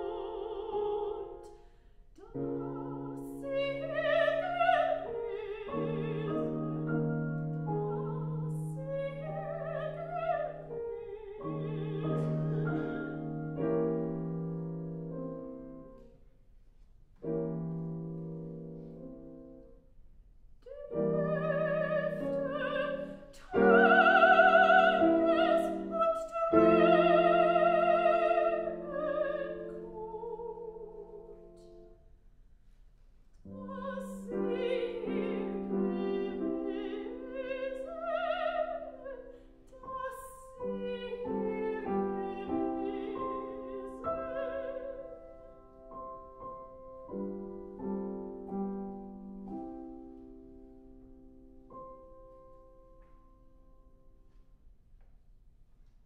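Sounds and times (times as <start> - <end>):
piano accompaniment: 0.0 - 1.5, 2.2 - 32.2, 33.4 - 54.7
soprano singing with vibrato: 0.0 - 1.5, 2.2 - 13.8, 20.6 - 31.7, 33.4 - 45.5.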